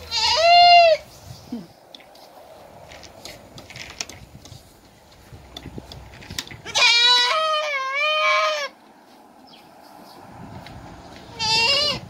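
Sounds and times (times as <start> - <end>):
goat bleating: 0.0 - 1.1, 6.6 - 8.8, 11.2 - 12.0.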